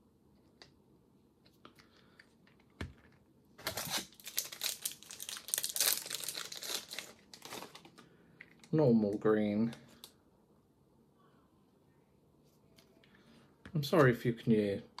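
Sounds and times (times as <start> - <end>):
packaging crinkling: 3.6 - 8.0.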